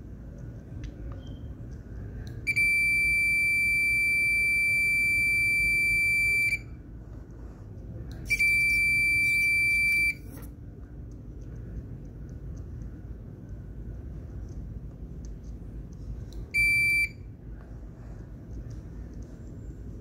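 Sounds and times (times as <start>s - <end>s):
electronic buzzer beeping: 2.5s - 6.6s, 8.3s - 10.3s.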